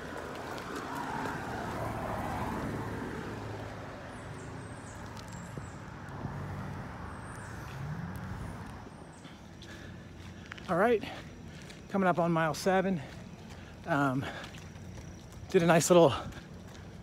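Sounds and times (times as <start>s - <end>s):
vehicle passing: 0.0s - 11.6s
traffic rush: 0.0s - 17.0s.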